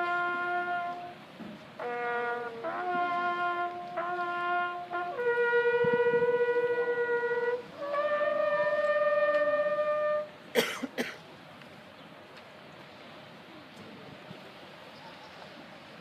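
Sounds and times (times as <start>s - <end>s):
bugle playing long notes: 0.0s - 10.4s.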